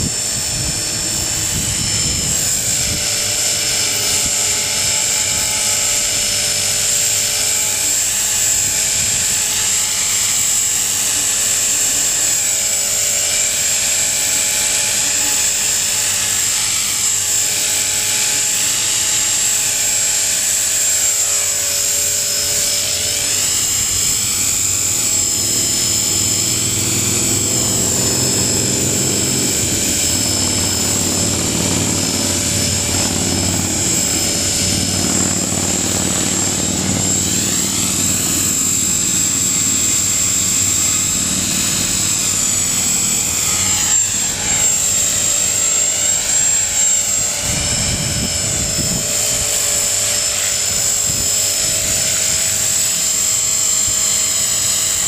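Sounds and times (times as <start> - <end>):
rotor blades whooshing: 0.0 - 5.6, 20.0 - 53.0
rc helicopter motor whine: 0.0 - 55.0.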